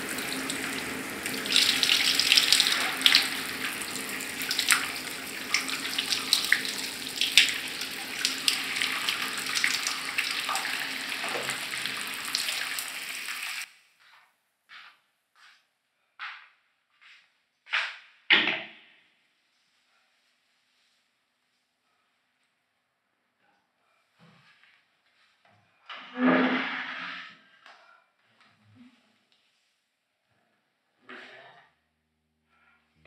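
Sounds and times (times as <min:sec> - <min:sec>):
shower water splashing: 0:00.0 - 0:13.7.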